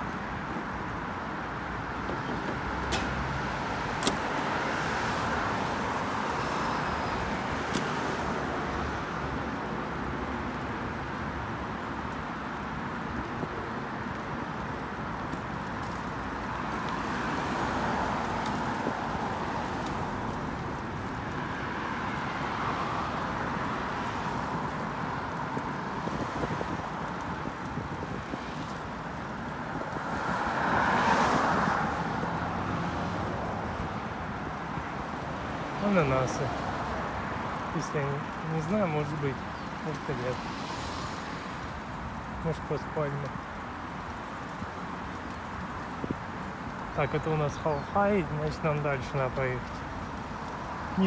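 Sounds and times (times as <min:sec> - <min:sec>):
tyre hiss of passing cars: 0:00.0 - 0:15.1, 0:15.7 - 0:51.0
wind rumble on microphone: 0:13.0 - 0:35.5.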